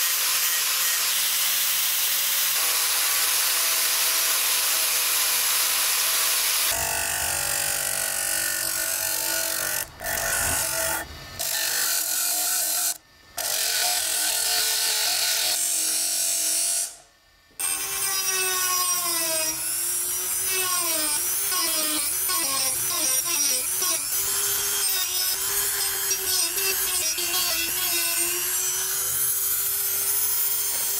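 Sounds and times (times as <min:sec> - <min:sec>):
bench grinder whining on steel: 0:16.8 - 0:30.9.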